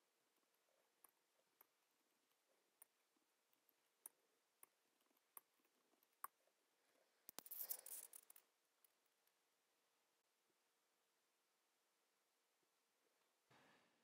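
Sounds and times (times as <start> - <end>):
faint keyboard typing: 7.2 - 9.3.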